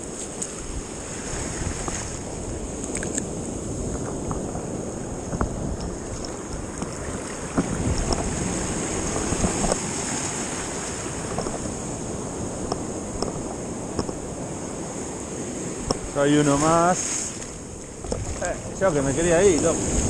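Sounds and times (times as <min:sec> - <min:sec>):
surf washing on beach: 0:00.0 - 0:20.0
wind on microphone: 0:00.0 - 0:20.0.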